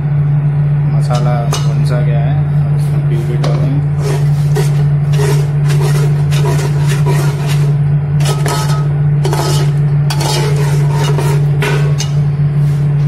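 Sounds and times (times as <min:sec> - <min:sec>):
low hum: 0:00.0 - 0:13.0
metal spoon scraping pot: 0:03.2 - 0:12.3.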